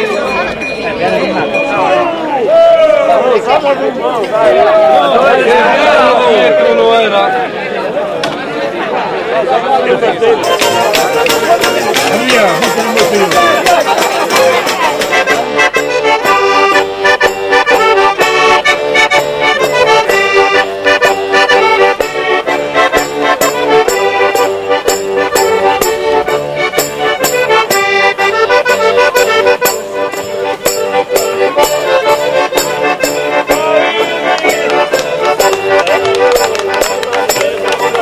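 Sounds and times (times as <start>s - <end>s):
accordion playing folk dance tune: 10.2s - 38.0s
steady beat: 10.4s - 38.0s.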